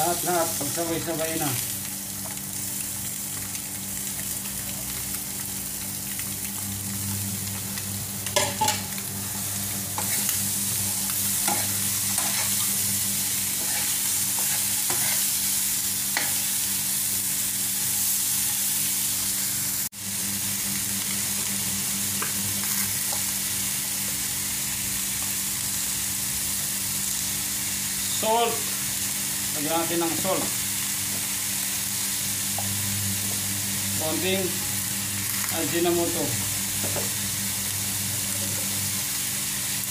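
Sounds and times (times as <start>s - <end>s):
food sizzling in hot oil: 0.0s - 39.9s
metal spoon scraping a pan: 10.0s - 12.7s, 13.6s - 15.4s.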